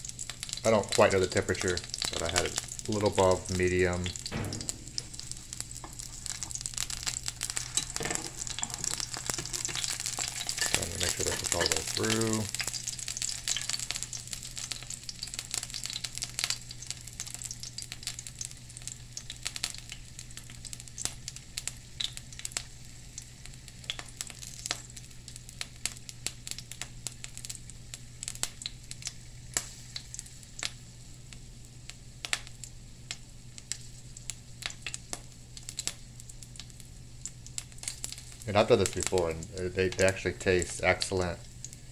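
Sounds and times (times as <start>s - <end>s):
low steady hum: 0.0s - 13.9s
oil sizzling and popping: 0.0s - 41.9s.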